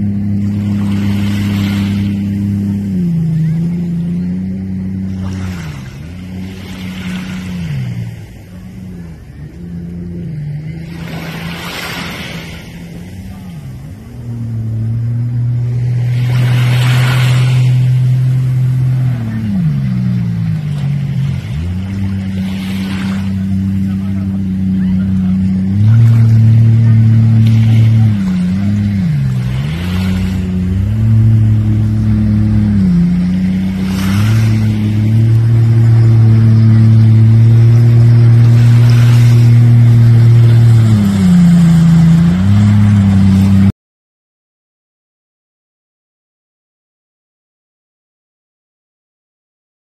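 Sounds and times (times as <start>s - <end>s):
jet ski engine revving: 0.0s - 43.7s.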